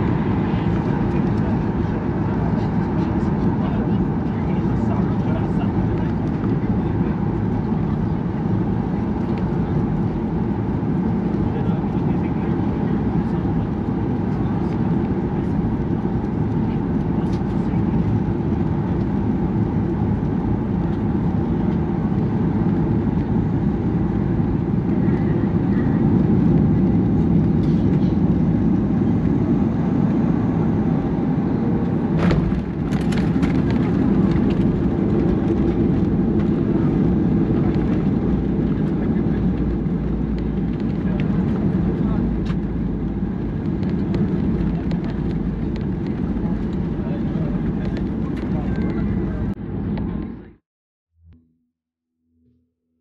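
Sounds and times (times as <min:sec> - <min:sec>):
jet engine and airflow in cabin: 0:00.0 - 0:50.6
plane rolling out rumble: 0:00.0 - 0:50.6.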